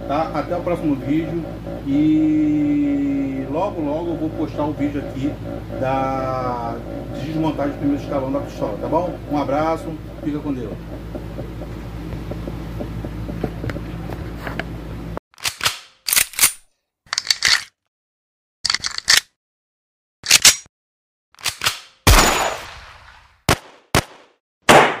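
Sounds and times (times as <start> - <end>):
room hum: 0.0 - 15.2
gunshot sound effects: 22.1 - 25.0.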